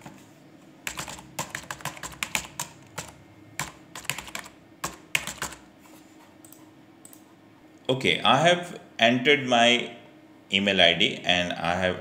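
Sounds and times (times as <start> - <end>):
typing on computer keyboard: 0.9 - 5.6.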